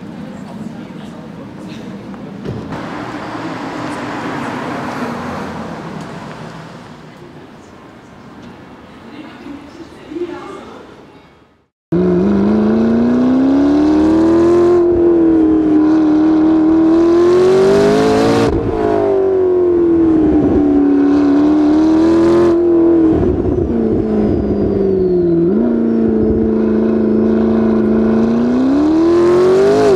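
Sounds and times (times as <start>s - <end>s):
supercar engine revving: 11.9s - 29.9s.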